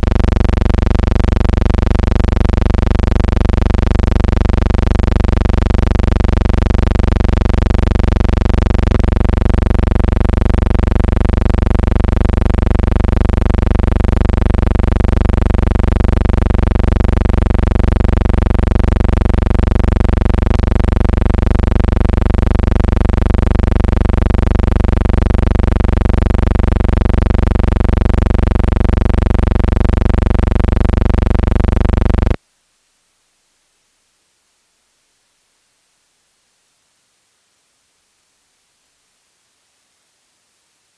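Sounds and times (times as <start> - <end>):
loud electrical hum: 0.0 - 32.4.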